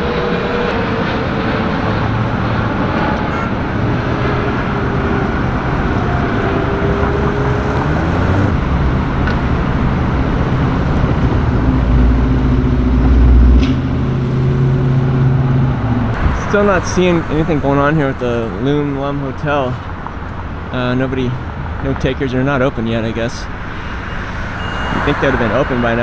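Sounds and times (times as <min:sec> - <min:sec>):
deep low rumble: 0:00.0 - 0:18.6
cars passing: 0:00.0 - 0:26.0.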